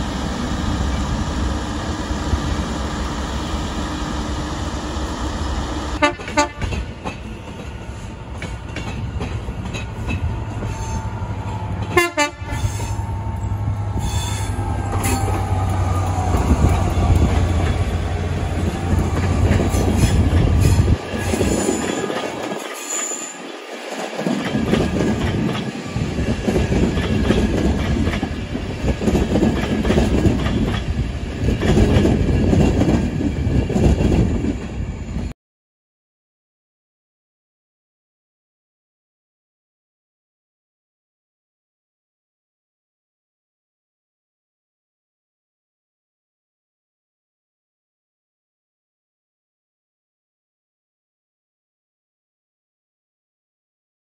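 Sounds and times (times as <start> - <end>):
train passing at speed: 0.0 - 35.4.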